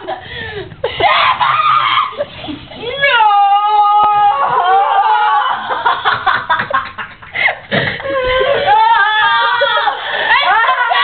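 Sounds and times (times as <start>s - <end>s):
girls laughing excitedly: 0.0s - 3.0s, 4.1s - 11.0s
girl shrieking: 8.2s - 11.0s.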